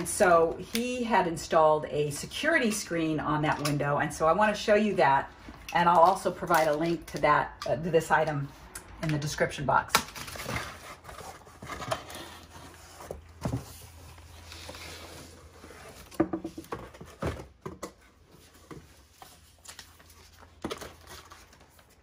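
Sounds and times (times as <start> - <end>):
cardboard and plastic rustling: 10.0 - 22.0.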